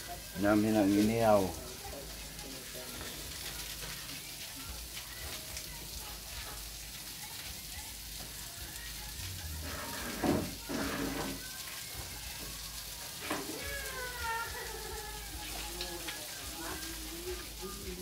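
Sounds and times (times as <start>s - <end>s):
fire crackles: 0.0s - 18.0s
food sizzling over fire: 0.0s - 18.0s.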